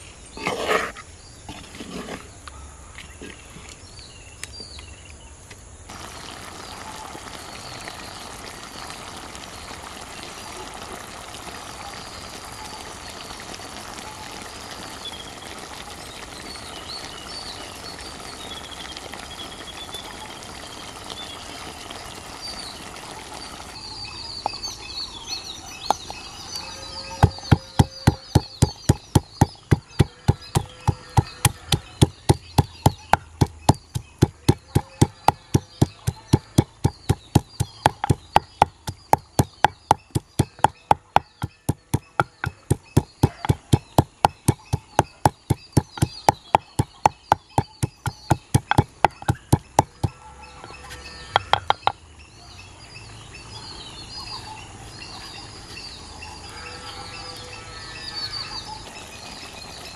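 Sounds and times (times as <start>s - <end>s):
birds chirping: 0.0s - 59.9s
pestle knocking in wooden mortar: 27.2s - 50.2s, 51.3s - 52.0s.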